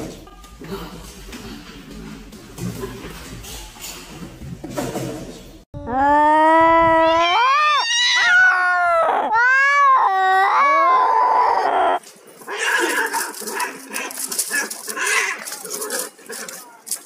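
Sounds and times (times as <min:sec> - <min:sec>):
cat meowing loudly: 0:06.7 - 0:12.0
cats scuffling: 0:12.0 - 0:17.0.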